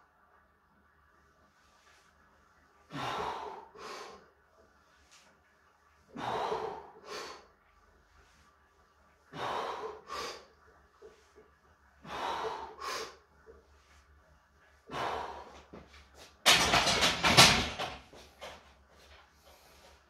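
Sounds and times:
man breathing hard: 0:02.9 - 0:04.4, 0:06.1 - 0:07.6, 0:09.3 - 0:10.6, 0:12.0 - 0:13.3, 0:14.8 - 0:16.0.

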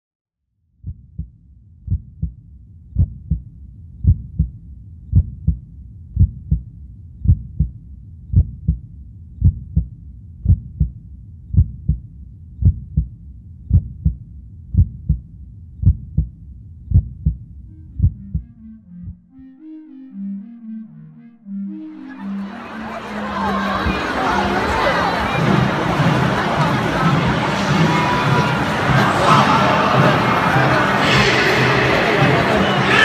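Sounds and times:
heartbeat thumps: 0:00.8 - 0:19.4
steady low rumble: 0:00.8 - 0:32.9.

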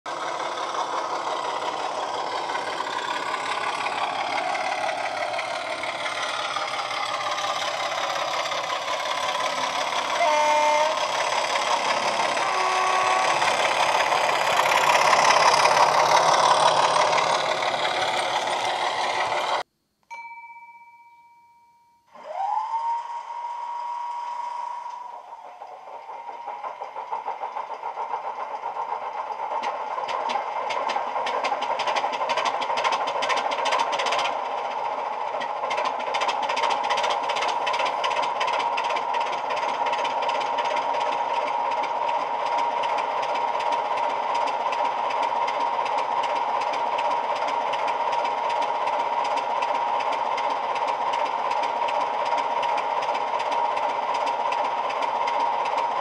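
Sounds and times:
model diesel engine running: 0:00.1 - 0:19.7, 0:22.2 - 0:56.0
pulsing engine idle: 0:00.1 - 0:19.7, 0:22.1 - 0:56.0
horn blasts: 0:10.1 - 0:11.4, 0:12.4 - 0:13.6, 0:22.1 - 0:25.4
faint steady tone: 0:19.7 - 0:22.2.

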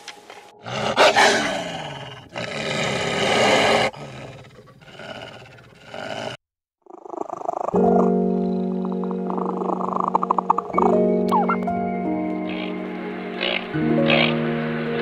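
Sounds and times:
wolf growling: 0:00.5 - 0:11.0.

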